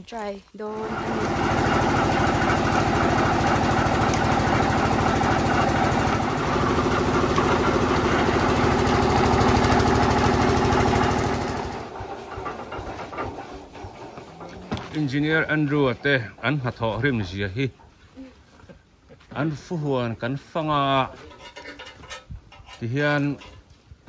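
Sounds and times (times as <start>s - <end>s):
sugarcane crusher running: 0.6s - 17.1s.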